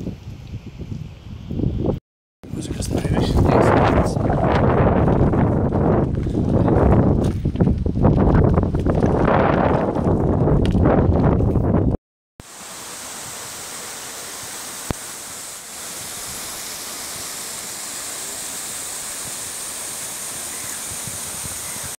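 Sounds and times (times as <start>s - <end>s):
waterfall rushing: 12.4s - 22.0s.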